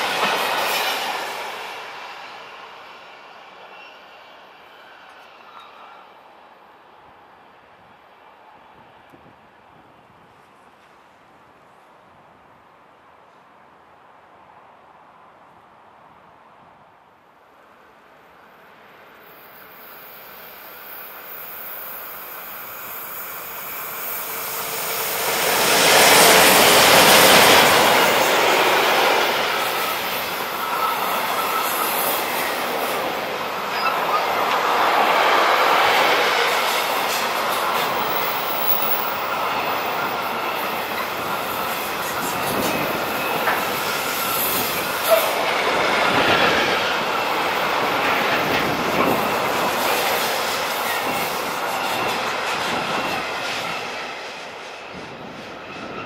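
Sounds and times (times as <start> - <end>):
electric freight train passing: 0.0 - 12.0, 17.2 - 56.0
thin squealing tones: 27.0 - 34.8.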